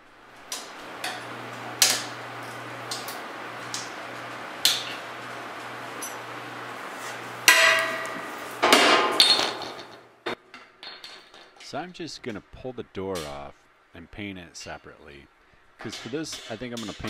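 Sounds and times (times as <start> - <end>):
steady low hum: 0.0 - 10.4, 11.2 - 17.0
hammer striking steel punch: 7.5 - 9.3.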